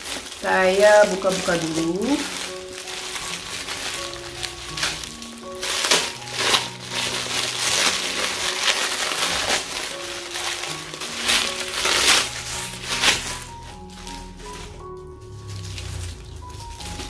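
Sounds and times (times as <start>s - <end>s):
plastic wrapping crinkling: 0.0s - 17.0s
soft background music: 0.0s - 17.0s.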